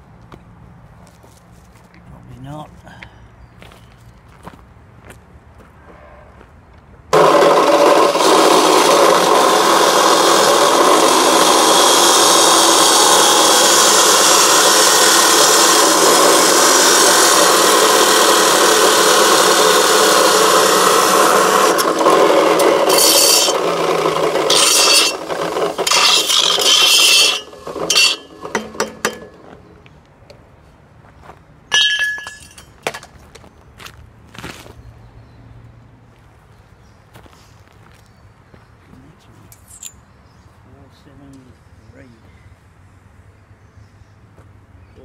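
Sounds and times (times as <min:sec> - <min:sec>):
chop saw grinding steel: 0:07.1 - 0:29.8, 0:31.7 - 0:33.1
metal knocks and clinks: 0:31.7 - 0:33.2.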